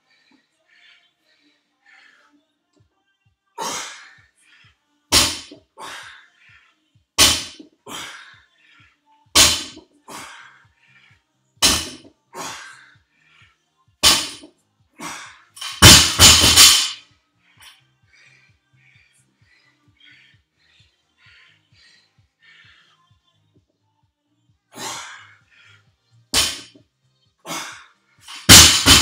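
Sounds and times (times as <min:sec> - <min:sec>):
dropped barbell bouncing: 0:28.3 - 0:29.0.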